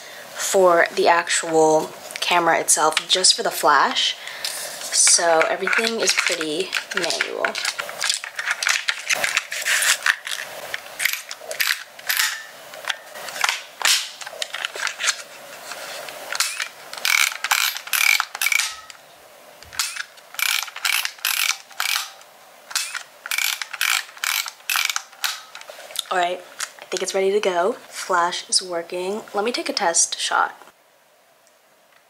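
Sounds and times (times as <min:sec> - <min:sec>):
film-advance wheel ratcheting: 0:05.0 - 0:15.2, 0:16.3 - 0:19.0, 0:19.7 - 0:25.7
plastic camera clicking: 0:05.4 - 0:12.2, 0:19.7 - 0:25.7.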